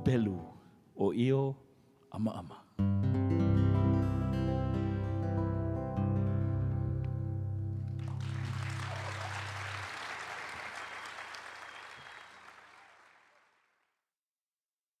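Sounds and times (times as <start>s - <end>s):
audience applauding: 8.0s - 13.8s.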